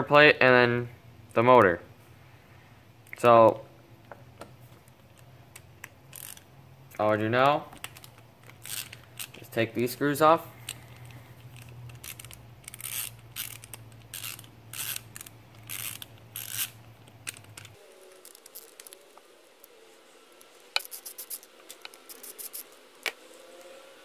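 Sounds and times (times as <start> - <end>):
screwdriver scraping ratchety strokes: 6.1 - 6.5, 8.4 - 9.4, 10.6 - 19.2, 20.7 - 23.1.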